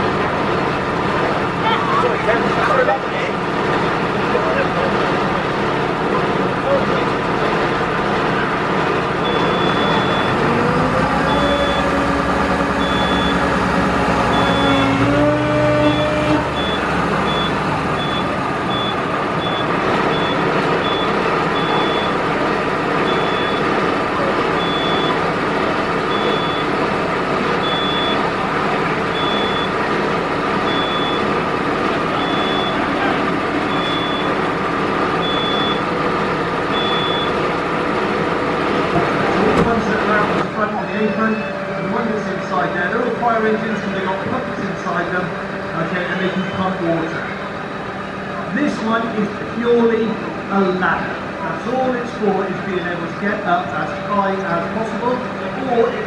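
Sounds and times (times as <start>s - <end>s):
engine or pump whine: 0.0s - 56.0s
warning beeps: 9.2s - 10.4s, 11.2s - 12.0s, 12.8s - 13.5s, 14.3s - 14.9s, 15.8s - 22.2s, 23.1s - 23.7s, 24.6s - 25.2s, 26.1s - 26.7s, 27.6s - 28.2s, 29.1s - 29.8s, 30.7s - 31.2s, 32.2s - 34.4s, 35.2s - 35.9s, 36.7s - 37.4s.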